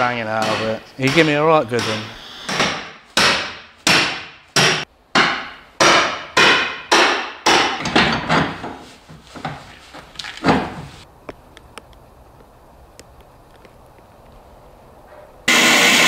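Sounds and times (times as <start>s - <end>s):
hammer pounding metal: 0.0s - 8.8s.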